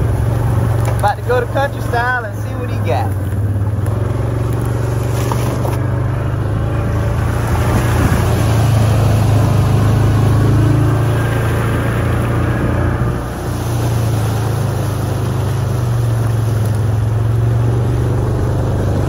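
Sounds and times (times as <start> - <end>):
vehicle engine droning: 0.0 - 19.0.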